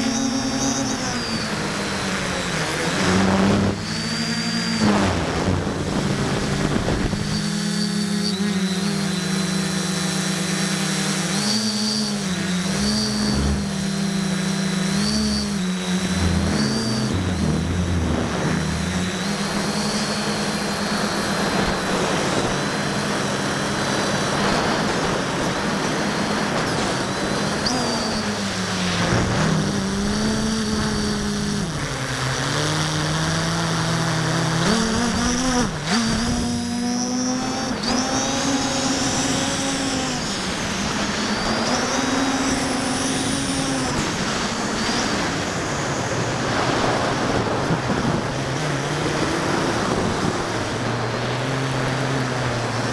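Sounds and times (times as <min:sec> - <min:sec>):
drone propellers buzzing: 0:00.0 - 0:52.9.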